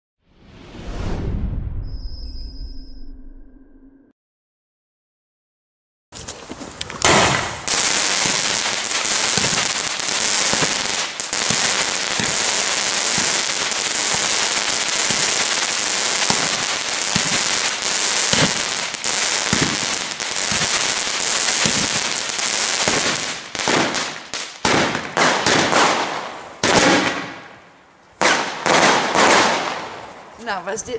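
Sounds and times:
firework crackling: 6.4 - 27.6, 28.2 - 30.6
loud firework bang: 7.0 - 8.4, 18.3 - 18.8.

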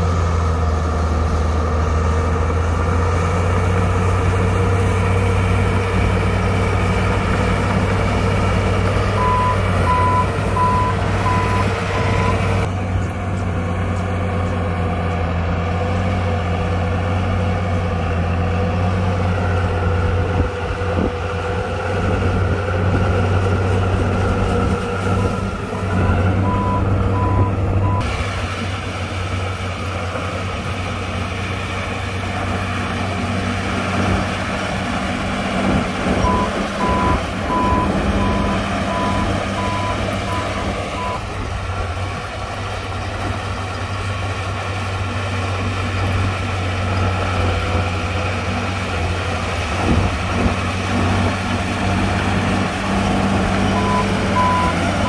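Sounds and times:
diesel engine running: 0.0 - 55.0
reversing alarm beeping: 9.2 - 12.6, 26.0 - 28.1, 36.2 - 41.2, 53.8 - 54.8.

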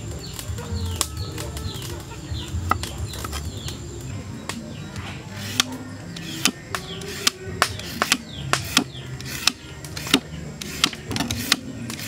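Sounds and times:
peeler scraping carrot: 5.3 - 12.0.

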